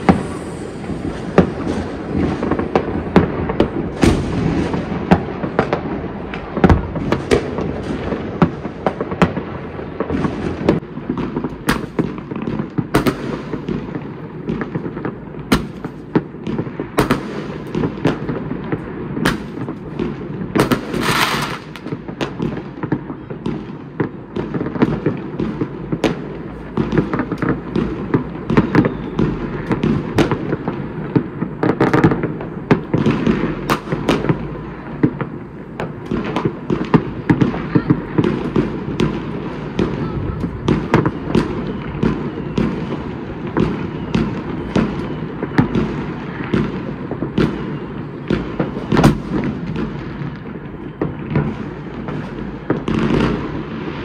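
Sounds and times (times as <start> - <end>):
firework hiss: 0.0 - 8.0, 10.2 - 22.2
distant fireworks rumble: 0.0 - 54.0
sharp firecracker cracks: 10.1 - 18.4, 19.2 - 22.6, 24.0 - 42.7, 48.3 - 50.0.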